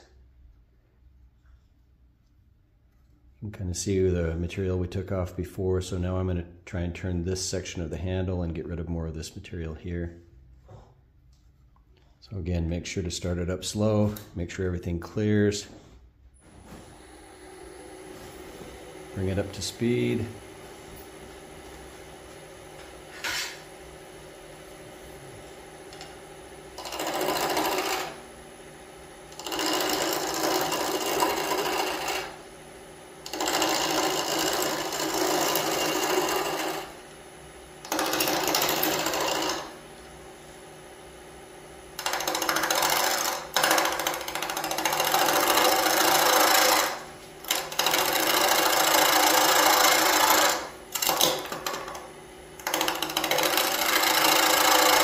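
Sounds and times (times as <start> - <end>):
wood lathe humming: 16.9 - 55.0
gouge cutting wood: 26.8 - 28.2, 29.4 - 32.4, 33.3 - 37.0, 37.9 - 39.8, 42.0 - 51.7, 52.6 - 55.0.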